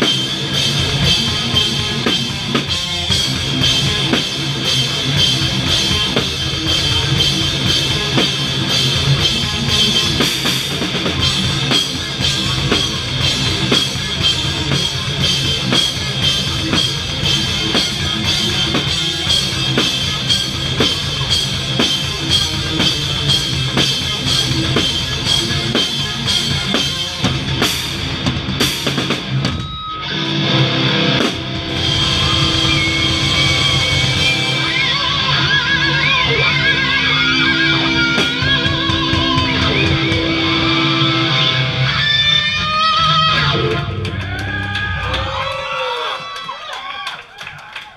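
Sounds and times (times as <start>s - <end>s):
distorted guitars: 0.0s - 46.3s
fast heavy metal drumming: 0.0s - 46.6s.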